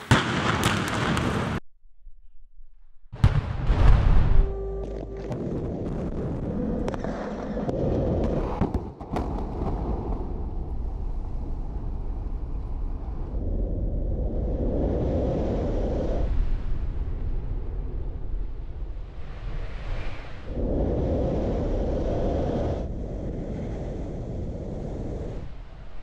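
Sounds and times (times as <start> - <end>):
sharp explosive cracks: 0.0 - 1.6, 3.2 - 4.4, 5.3 - 11.2.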